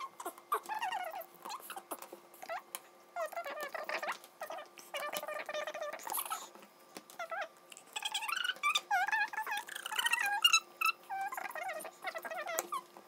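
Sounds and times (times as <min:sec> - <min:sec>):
high-pitched squeaky chattering: 0:07.2 - 0:12.9.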